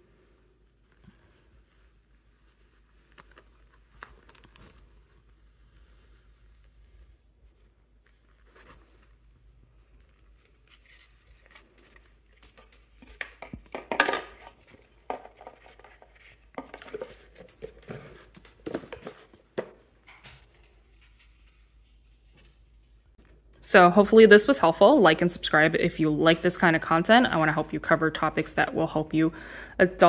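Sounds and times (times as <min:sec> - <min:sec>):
cloth bag rustling: 0:00.2 - 0:13.2
boxes tapping and knocking on counter: 0:13.3 - 0:16.0.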